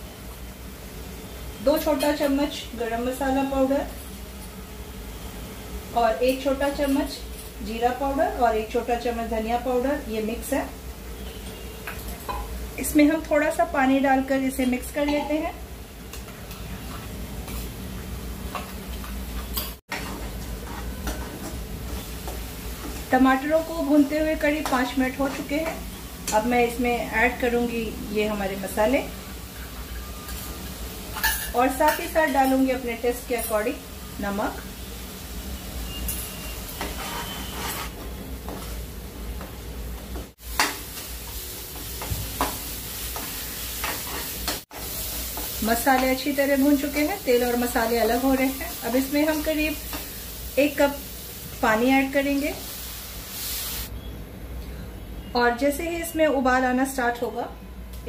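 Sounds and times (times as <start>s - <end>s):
masala sizzling in oil: 0.0s - 54.1s
steel spoon scraping a pan: 35.9s - 38.0s
spatula stirring in frying pan: 36.8s - 38.8s, 40.4s - 46.0s.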